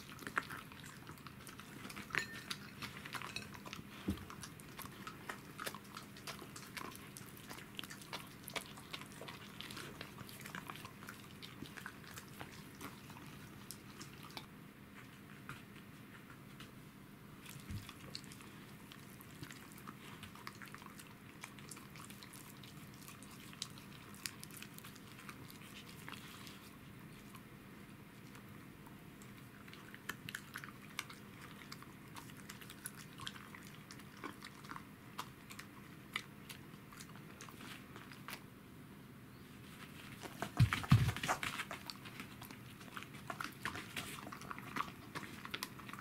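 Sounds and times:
dog crunching bone: 0:00.0 - 0:14.5, 0:29.2 - 0:38.5, 0:40.1 - 0:46.0.

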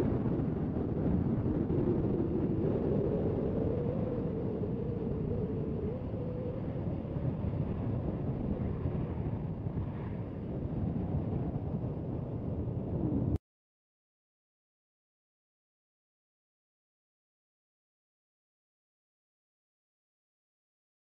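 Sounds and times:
wind buffeting microphone: 0:00.0 - 0:13.4.

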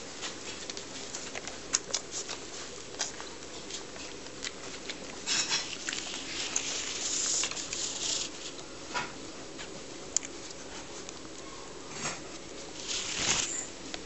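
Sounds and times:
puppies rustling on fabric: 0:00.1 - 0:08.6, 0:12.3 - 0:13.8
hissing rustle: 0:12.6 - 0:13.7.

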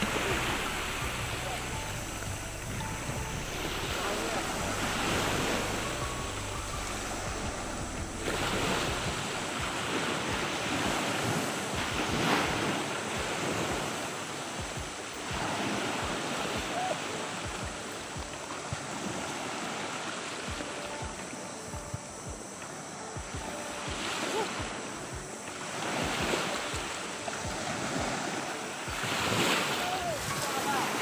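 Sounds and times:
small waves breaking: 0:00.0 - 0:31.0.

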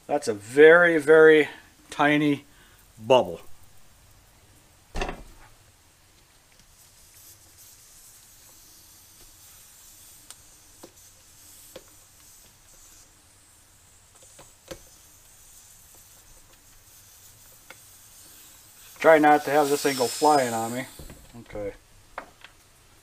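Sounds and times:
air hissing from tire: 0:06.7 - 0:21.4.

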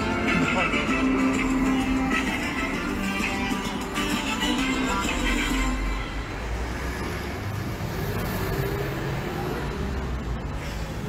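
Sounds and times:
road traffic noise: 0:00.0 - 0:11.0
car passing with tyre hiss: 0:06.5 - 0:11.0.

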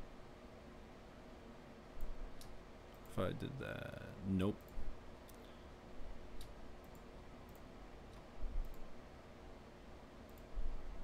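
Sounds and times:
computer mouse clicking: 0:06.4 - 0:08.9, 0:10.2 - 0:10.5.

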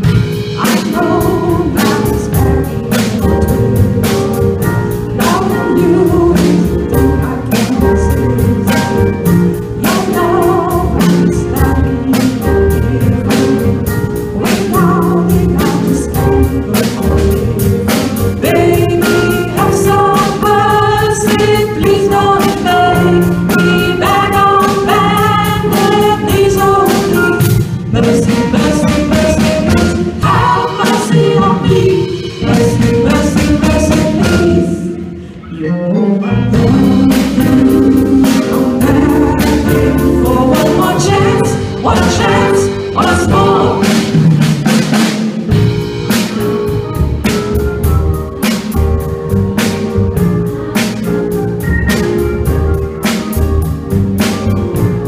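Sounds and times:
drum kit: 0:00.0 - 0:35.4, 0:36.4 - 0:55.0
keyboards: 0:00.0 - 0:55.0
person singing: 0:00.6 - 0:09.0, 0:09.7 - 0:44.1.

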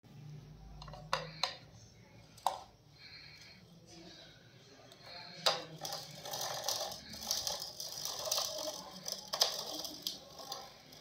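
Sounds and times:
plastic toy car rattling and scraping: 0:05.4 - 0:11.0.

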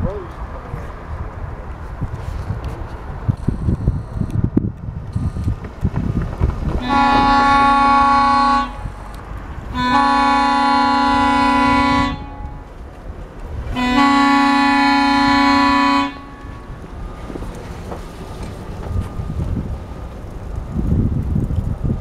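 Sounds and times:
truck horn blasts: 0:06.8 - 0:09.1, 0:09.7 - 0:12.7, 0:13.7 - 0:16.8.

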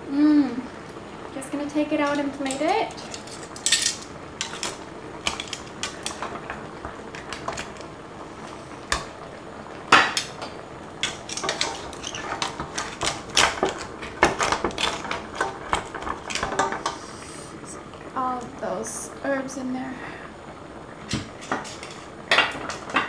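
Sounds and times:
utensils clattering against shells and pot: 0:01.9 - 0:09.1, 0:09.9 - 0:17.1, 0:21.0 - 0:23.0.

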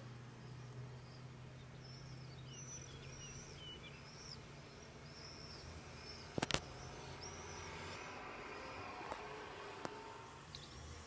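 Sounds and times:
small bird chirping: 0:00.0 - 0:08.4, 0:10.4 - 0:11.0.

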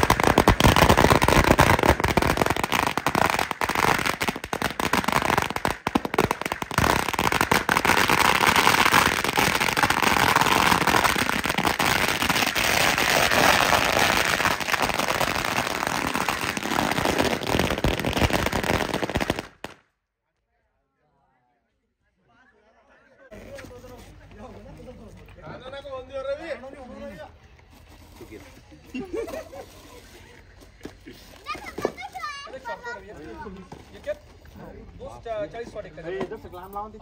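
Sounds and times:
firecrackers going off: 0:00.0 - 0:19.9.

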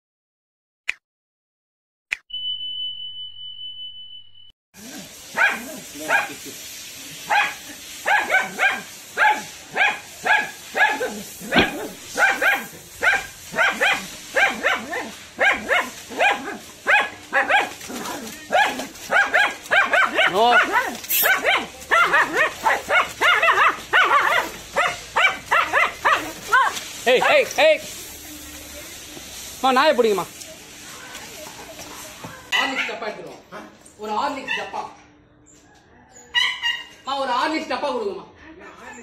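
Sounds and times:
short high beep: 0:02.3 - 0:04.5
small dog barking: 0:05.3 - 0:06.4, 0:07.3 - 0:27.5, 0:32.4 - 0:33.0, 0:36.3 - 0:36.9.

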